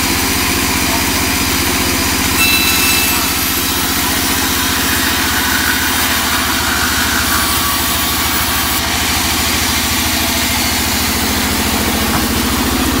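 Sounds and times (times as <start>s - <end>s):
band saw running: 0.5s - 13.0s
saw blade cutting wood: 2.4s - 9.5s.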